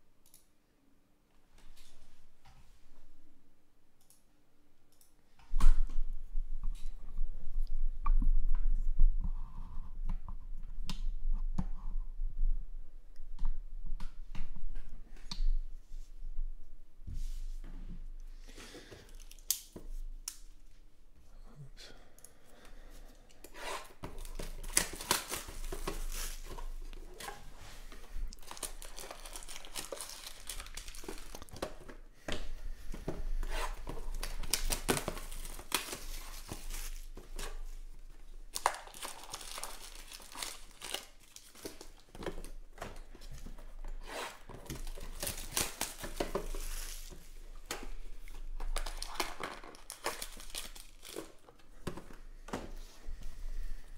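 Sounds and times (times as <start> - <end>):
plastic film crinkling and tearing: 24.1 - 31.6, 33.7 - 37.8, 38.5 - 42.3, 44.3 - 47.8, 48.4 - 51.6.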